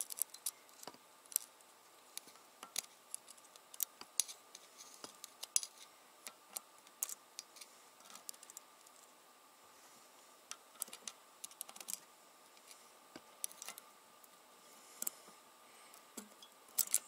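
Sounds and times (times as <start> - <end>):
small metallic clicks and scrapes: 0.0 - 9.1, 10.5 - 13.9, 15.9 - 17.0.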